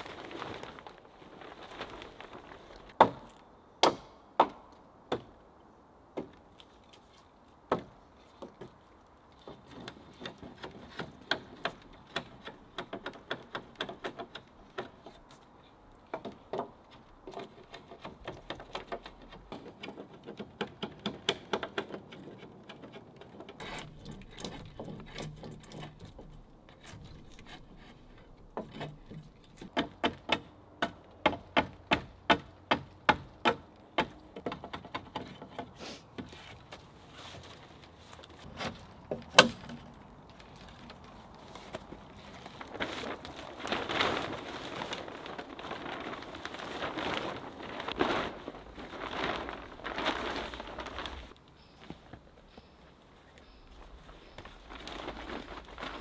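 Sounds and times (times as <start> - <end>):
wooden knocks on log poles: 3.0 - 5.3, 7.7 - 8.8, 16.1 - 27.6, 28.5 - 36.3.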